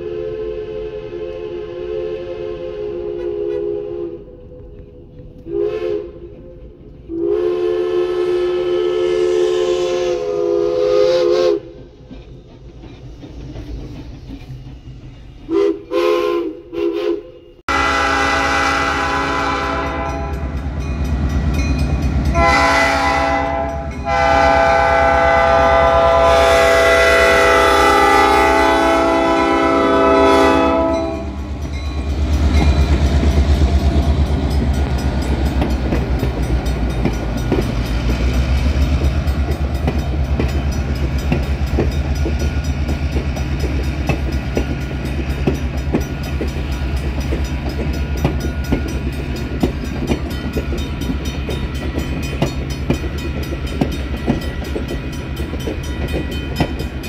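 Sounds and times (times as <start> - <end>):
diesel locomotive air horn blasts: 0.0 - 6.3, 7.1 - 11.8, 15.5 - 20.8, 22.0 - 34.3
steam locomotive whistle toots: 0.0 - 11.9, 15.5 - 55.2
train rolling with low rumble: 0.0 - 57.0
clickety-clack of train wheels: 4.5 - 16.8, 17.8 - 57.0.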